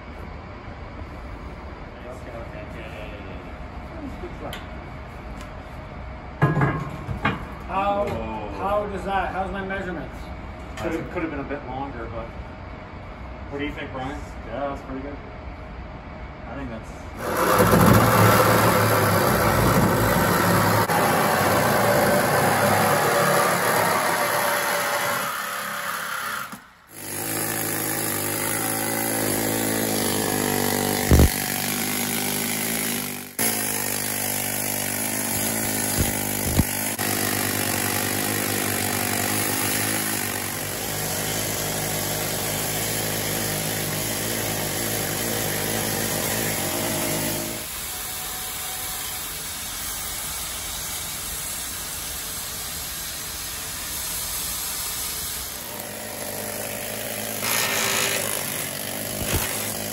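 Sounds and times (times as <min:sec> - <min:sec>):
angle grinder cutting steel: 0:17.2 - 0:50.3, 0:55.4 - 0:59.9
pneumatic air hammer: 0:17.2 - 0:59.9
reciprocating saw cutting steel: 0:17.2 - 0:59.9.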